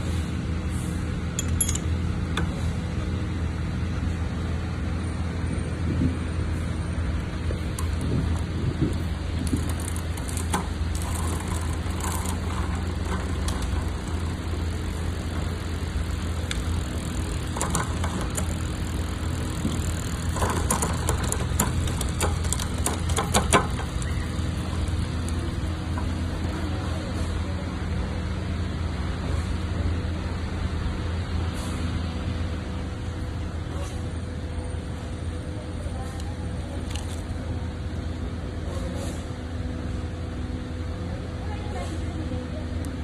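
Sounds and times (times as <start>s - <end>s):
steady low hum: 0.0s - 43.0s
bike chain and gears clicking: 1.3s - 2.6s, 7.1s - 27.4s, 36.8s - 37.4s.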